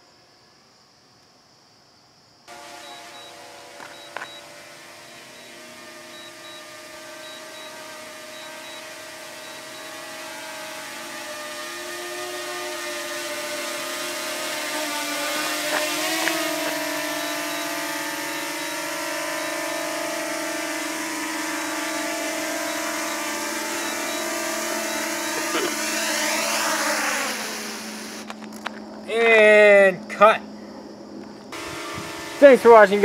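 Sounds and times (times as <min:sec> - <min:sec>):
drone propellers whirring: 0:02.5 - 0:29.7, 0:30.4 - 0:33.0
clicks: 0:03.8 - 0:04.4.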